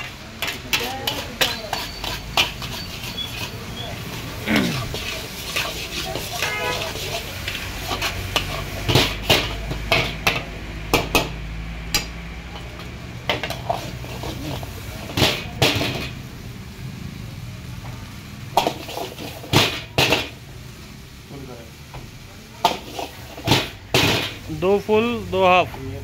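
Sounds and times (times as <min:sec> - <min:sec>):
metal spatula clanking on a wok: 0:00.0 - 0:04.2, 0:04.8 - 0:16.2, 0:18.5 - 0:20.4, 0:22.6 - 0:24.5.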